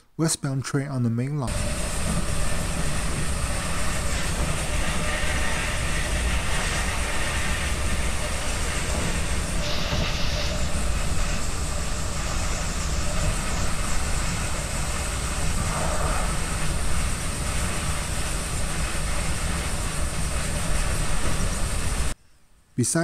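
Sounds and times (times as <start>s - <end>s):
train wheels rumbling on rail: 1.4s - 22.2s.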